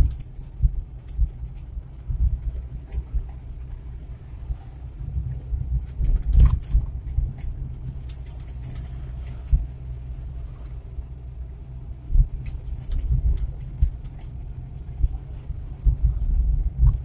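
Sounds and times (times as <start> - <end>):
engine and road rumble: 0.0 - 17.0
cabin rattles and clicks: 5.8 - 10.0.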